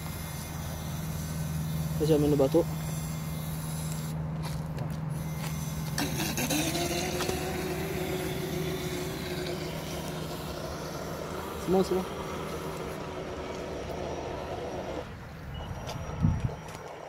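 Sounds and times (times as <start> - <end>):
constant low hum: 0.0 - 17.0
electric motor whine: 0.0 - 17.0.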